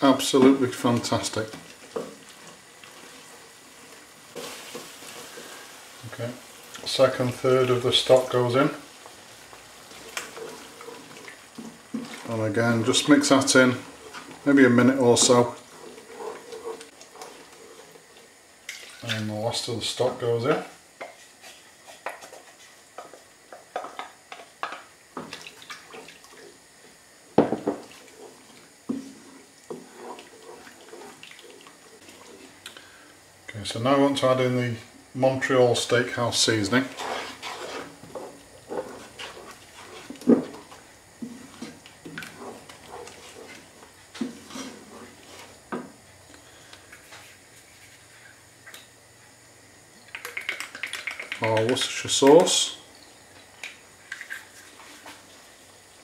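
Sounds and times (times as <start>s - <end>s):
spatula knocking and scraping pan: 0.3s - 3.3s, 9.5s - 18.0s, 20.5s - 26.1s, 27.3s - 32.6s, 36.4s - 46.0s
liquid sloshing and splashing: 9.5s - 14.5s, 15.2s - 19.2s, 25.2s - 26.6s, 27.6s - 32.7s.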